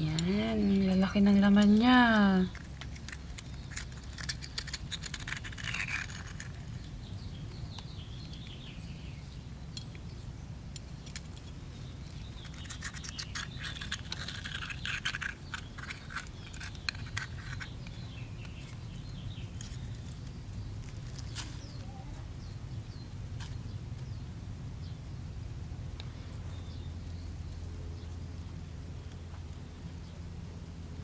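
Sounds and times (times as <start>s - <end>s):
faint birds chirping: 0.0s - 31.0s
metal spoon scraping shell: 2.4s - 6.9s, 12.4s - 18.7s.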